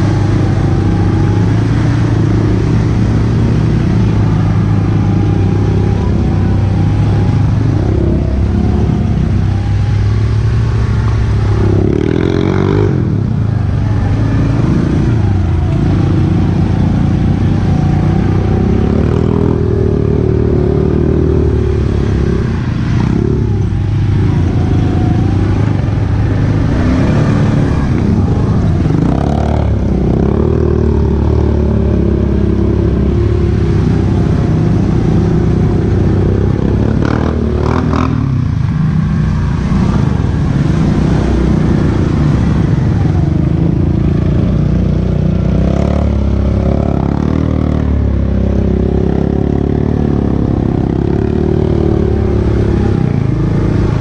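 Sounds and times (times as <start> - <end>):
quad engine revving: 18.0 - 54.0.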